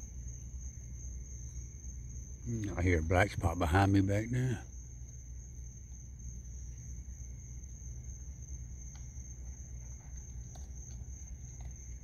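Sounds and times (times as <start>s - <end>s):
crickets chirping: 0.0s - 12.0s
faint clicks of animal eating: 8.8s - 9.1s, 9.8s - 12.0s.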